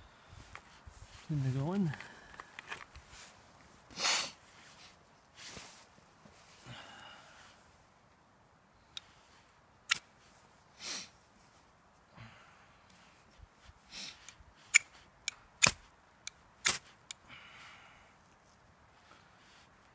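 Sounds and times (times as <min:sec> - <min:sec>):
person sniffing: 0:03.9 - 0:04.9, 0:10.8 - 0:11.2, 0:13.8 - 0:14.3.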